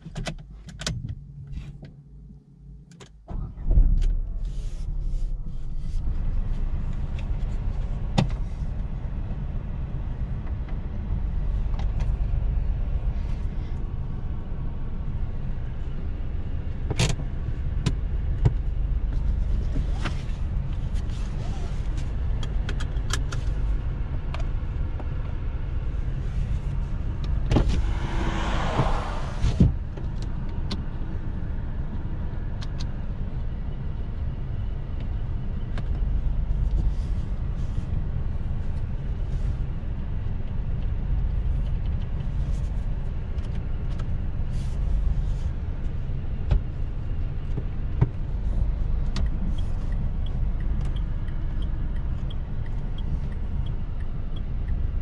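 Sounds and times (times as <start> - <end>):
brief rushing noise: 27.6 - 29.7.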